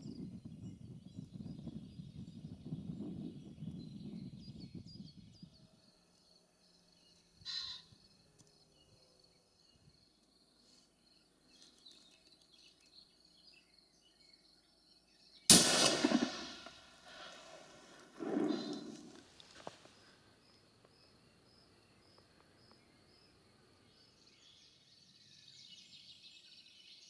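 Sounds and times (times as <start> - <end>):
faint birdsong: 0.0 - 27.0
short bird call: 7.4 - 7.9, 16.0 - 19.2
rifle shot: 15.5 - 19.2.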